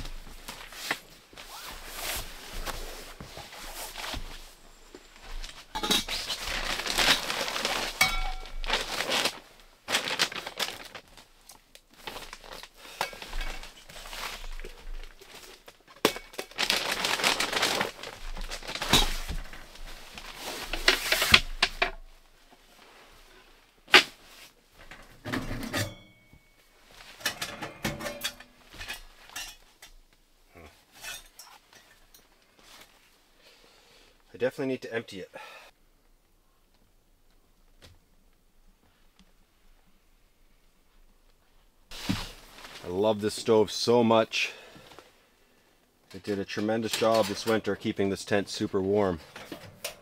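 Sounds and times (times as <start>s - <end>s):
fabric rustling and crackling: 0.0s - 24.9s, 40.9s - 43.0s
metallic clanks and knocks: 24.9s - 26.5s, 27.3s - 29.6s.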